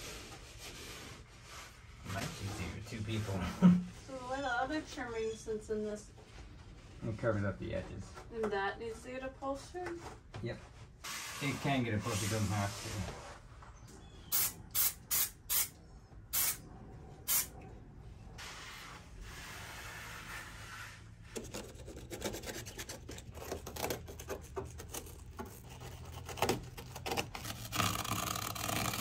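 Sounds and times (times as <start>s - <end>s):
crackly rubbing and scraping: 19.0s - 29.0s.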